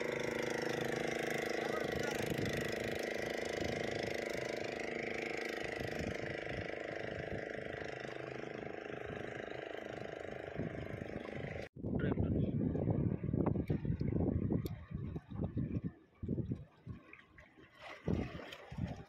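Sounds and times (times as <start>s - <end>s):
engine droning steadily: 0.0s - 11.7s.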